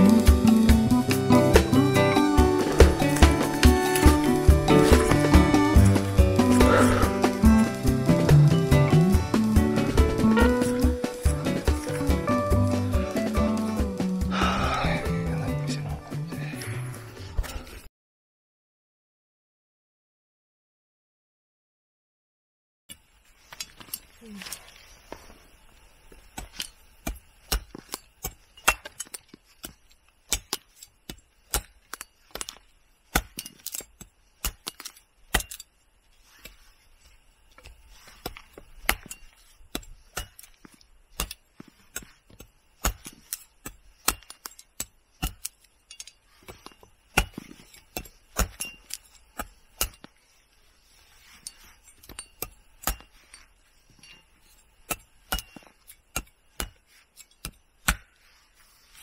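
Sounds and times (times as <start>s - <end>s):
knife chopping dry sticks: 0.0s - 14.8s, 26.3s - 35.7s, 37.6s - 53.6s, 54.8s - 59.0s.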